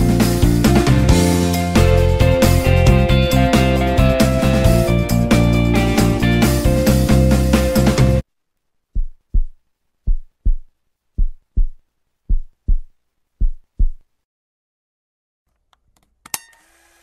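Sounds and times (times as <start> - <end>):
heartbeat thumps: 9.0 - 14.0.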